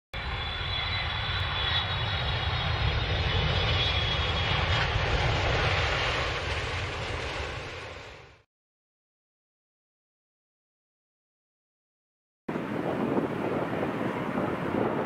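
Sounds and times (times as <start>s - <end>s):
jet engine rush: 0.2s - 8.5s, 12.5s - 15.0s.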